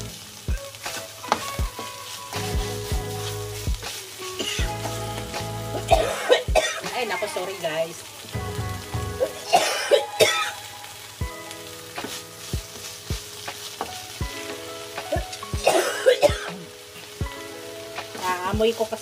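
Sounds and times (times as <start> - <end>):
food sizzling in a pan: 0.0 - 19.0
woman coughing: 5.8 - 6.9, 9.2 - 10.6, 15.6 - 16.6.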